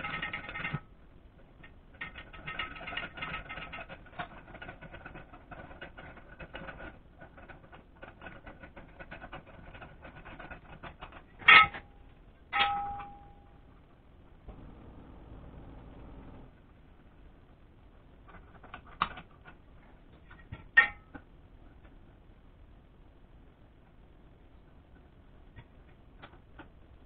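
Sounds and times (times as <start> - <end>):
sharp metal clanks: 11.4 - 13.6.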